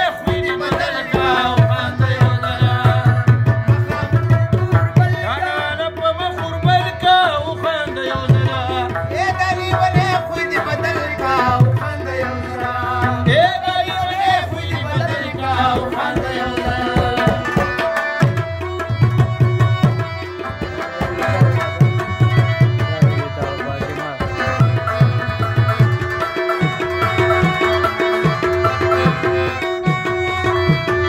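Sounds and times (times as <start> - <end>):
person singing: 0.0 - 17.9
drum beats: 0.0 - 31.0
harmonium tones: 0.0 - 31.0.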